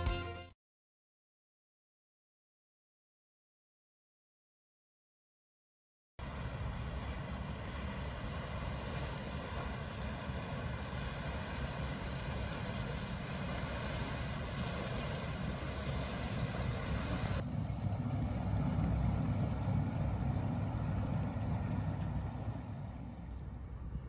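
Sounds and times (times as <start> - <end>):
ship diesel engine rumble: 6.2 - 24.0
water and wind hiss: 6.2 - 24.0.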